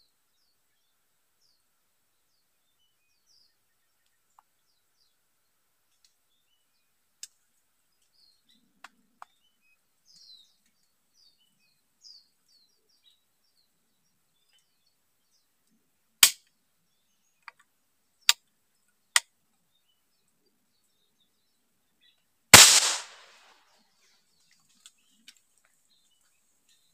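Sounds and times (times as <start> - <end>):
small birds chirping: 0.0 - 26.9
gunshots: 22.6 - 23.5.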